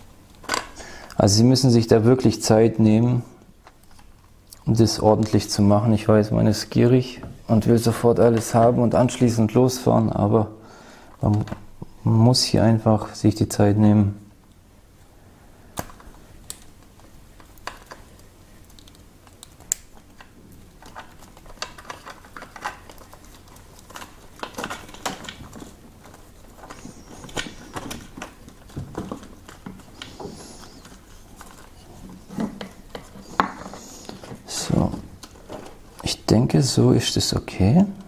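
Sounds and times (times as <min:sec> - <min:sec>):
cables rustling: 0:14.4 - 0:38.0.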